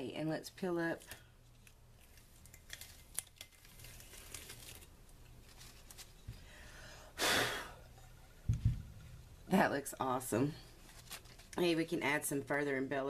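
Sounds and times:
contact paper peeling with crackles: 1.0s - 6.3s, 10.7s - 11.6s
plastic sheet rustling: 2.0s - 6.3s, 10.7s - 11.8s.

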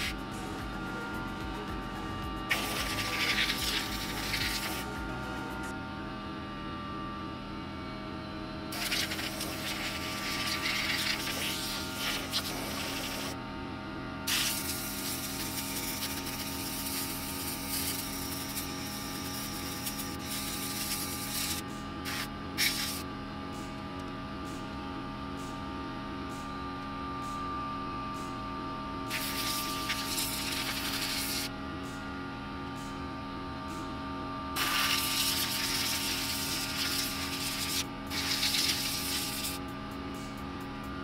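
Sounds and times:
air compressor hum: 0.0s - 6.9s, 8.7s - 13.4s, 14.2s - 41.0s
compressed air hissing: 2.5s - 5.0s, 8.7s - 13.4s, 14.3s - 23.0s, 29.1s - 31.5s, 34.6s - 39.6s.

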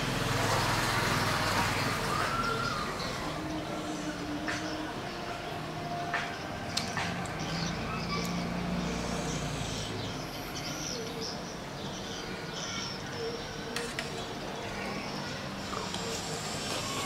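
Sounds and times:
passing vehicle rumble: 0.0s - 10.8s
birds chirping: 0.0s - 17.0s.

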